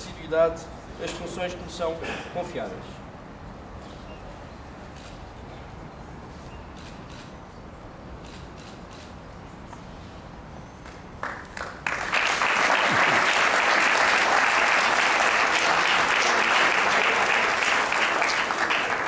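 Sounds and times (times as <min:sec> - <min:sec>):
audience applauding: 0:11.2 - 0:19.0.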